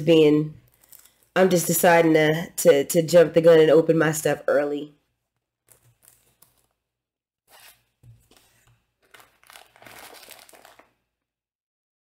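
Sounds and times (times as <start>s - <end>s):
plastic bag rustling: 8.2s - 11.0s.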